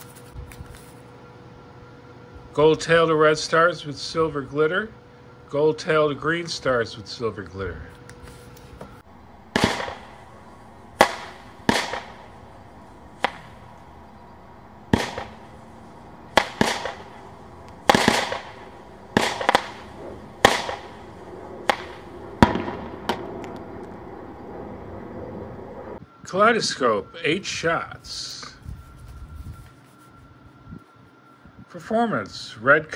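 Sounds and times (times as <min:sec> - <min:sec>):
firework bangs: 0:09.5 - 0:23.6.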